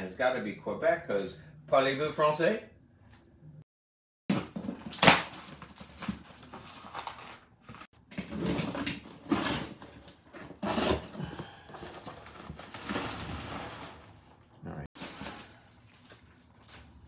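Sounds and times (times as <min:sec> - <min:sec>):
paper and plastic rustling: 0:04.4 - 0:17.0.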